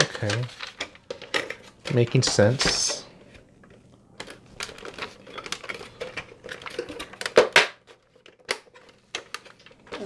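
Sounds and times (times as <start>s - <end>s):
plastic toy parts clicking together: 4.2s - 10.0s.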